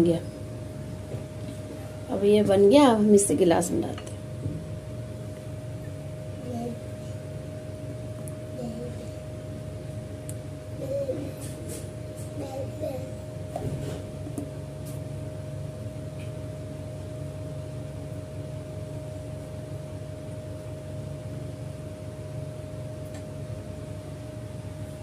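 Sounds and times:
machine hum with thin whine: 0.0s - 25.0s.

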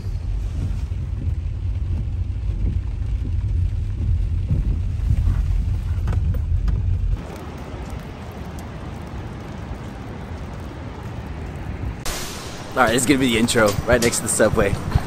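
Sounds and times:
car driving rumble inside cabin: 0.0s - 7.7s.

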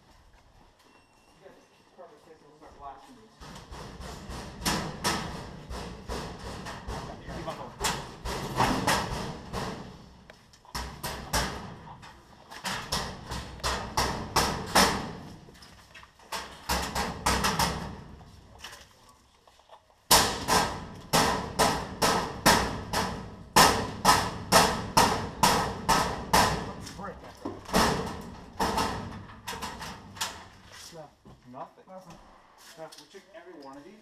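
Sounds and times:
sharp knocks and clatters: 3.4s - 18.8s, 20.1s - 31.4s.

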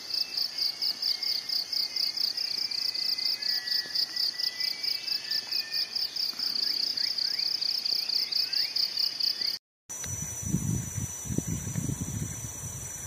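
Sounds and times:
insects chirring: 0.0s - 13.0s
steady high hiss: 0.0s - 13.0s
faint rising whistles: 0.6s - 6.0s.

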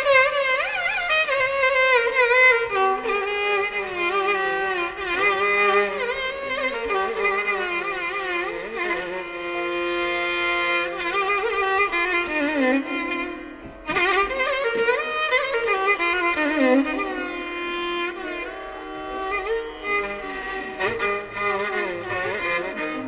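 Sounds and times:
sliding violin melody: 0.0s - 23.0s.

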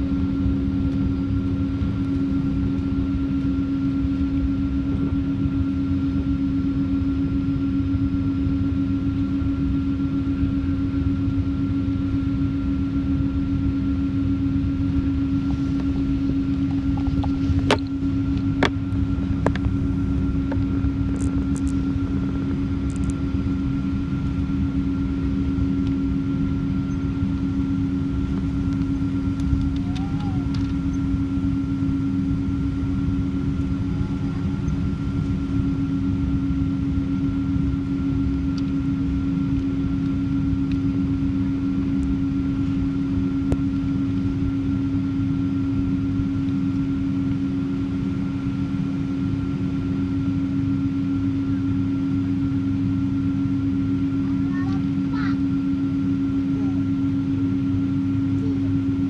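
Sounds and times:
jet engines humming: 0.0s - 59.0s
low rumble: 12.8s - 44.8s.

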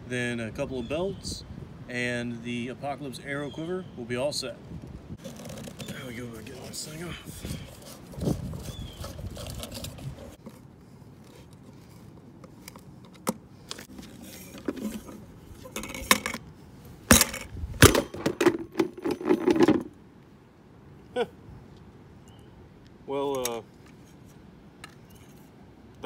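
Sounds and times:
plastic pole scraping and clattering: 5.2s - 10.6s, 11.2s - 16.5s, 17.1s - 19.9s.

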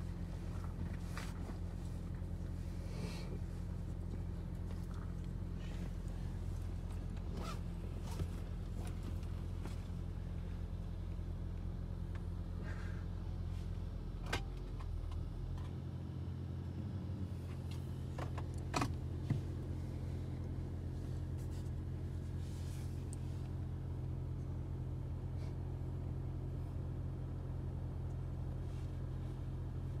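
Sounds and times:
engine idling: 0.0s - 30.0s.

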